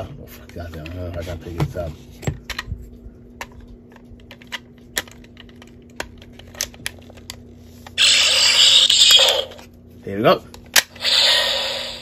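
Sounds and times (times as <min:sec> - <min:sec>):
electronic toy sound effect: 0:08.0 - 0:09.6, 0:11.0 - 0:12.0.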